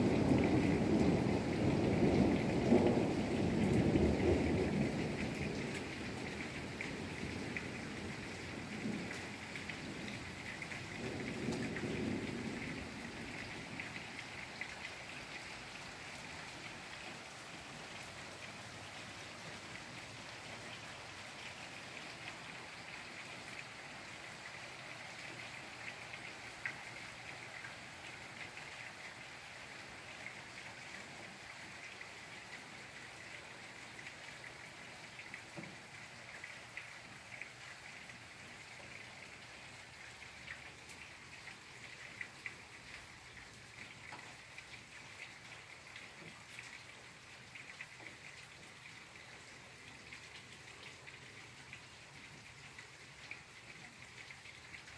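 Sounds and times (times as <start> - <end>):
rain pattering: 0.0 - 54.9
low thunder rumbling: 0.1 - 10.4.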